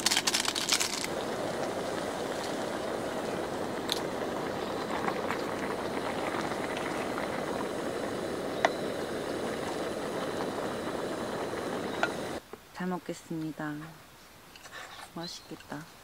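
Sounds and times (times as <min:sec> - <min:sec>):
broth boiling in a metal tin: 0:00.0 - 0:12.4.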